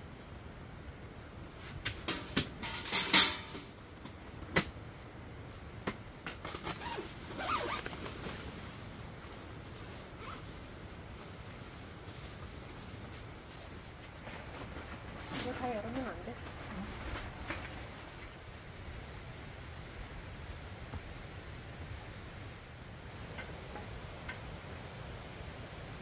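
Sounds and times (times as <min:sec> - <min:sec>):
metal table panels clattering: 0:02.0 - 0:03.7
tent fabric rustling: 0:06.3 - 0:19.1.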